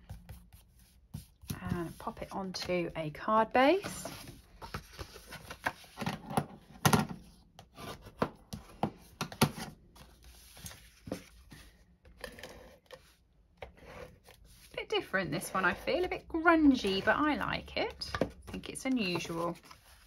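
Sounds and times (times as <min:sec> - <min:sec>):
card rustling and scraping: 0:03.7 - 0:06.4, 0:07.6 - 0:20.0.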